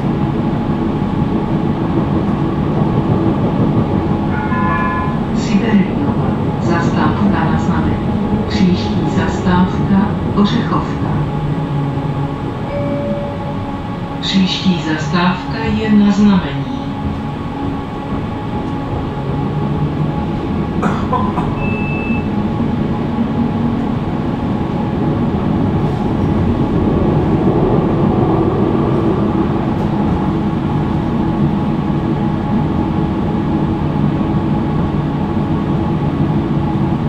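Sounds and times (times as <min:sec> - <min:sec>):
tram rumbling on rails: 0:00.0 - 0:37.0
short high beep: 0:12.7 - 0:13.8, 0:21.6 - 0:22.3.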